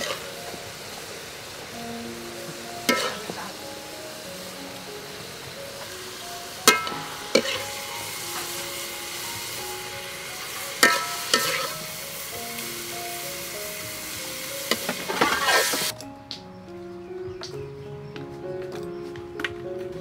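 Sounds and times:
food sizzling: 0.0s - 16.0s
metal spatula clanking on cookware: 2.9s - 3.3s, 6.7s - 7.7s, 10.8s - 11.8s.

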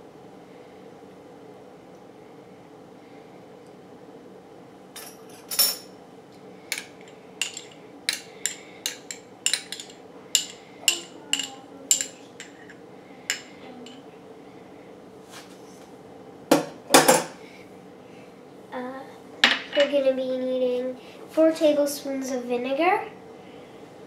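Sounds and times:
metal spoon clinking glass bowl: 6.7s - 12.7s, 13.3s - 14.0s.

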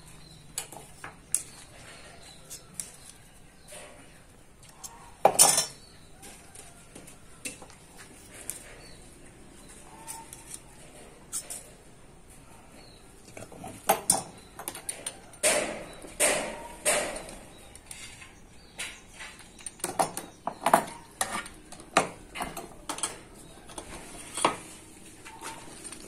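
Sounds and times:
metal scraping on wood: 13.9s - 26.0s.

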